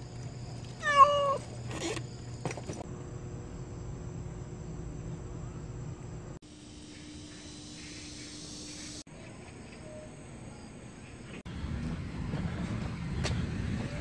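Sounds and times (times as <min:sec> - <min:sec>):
cat meowing: 0:00.8 - 0:01.4.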